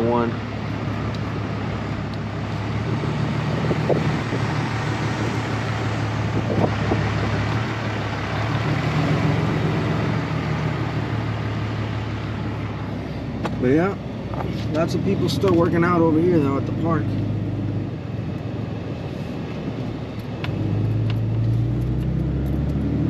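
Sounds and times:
road and wind noise: 0.0s - 23.0s
truck engine hum: 0.0s - 23.0s.

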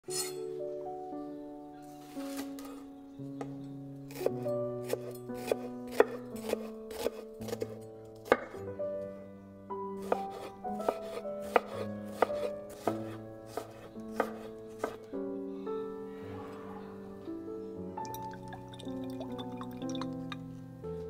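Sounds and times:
soft background music: 0.0s - 21.0s
knife chopping on wooden board: 4.1s - 8.6s, 10.0s - 15.0s.

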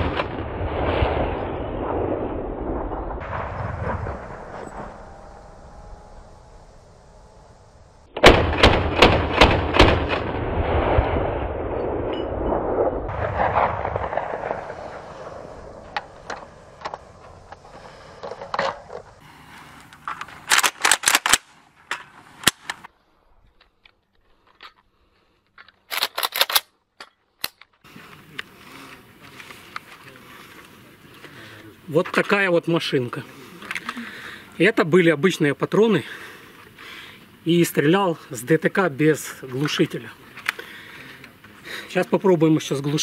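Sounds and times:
rifle shots with rolling echo: 0.0s - 6.1s, 8.1s - 17.5s.

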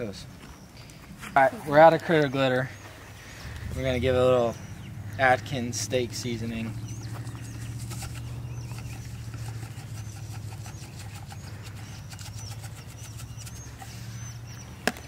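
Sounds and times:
fire pit burner rumbling: 2.7s - 10.5s.

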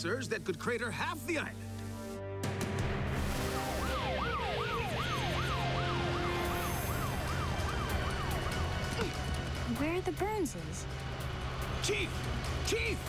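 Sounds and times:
low steady drone: 1.5s - 13.0s
cartoon siren yelping: 4.2s - 8.4s.

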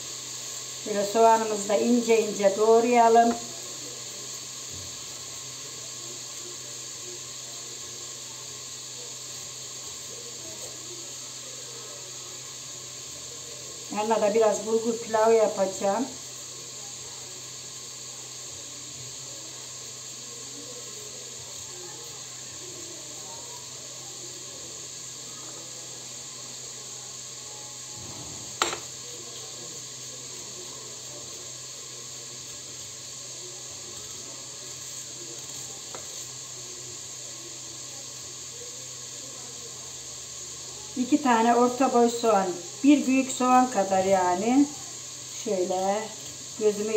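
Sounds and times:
meat sizzling in hot oil: 0.0s - 46.9s.

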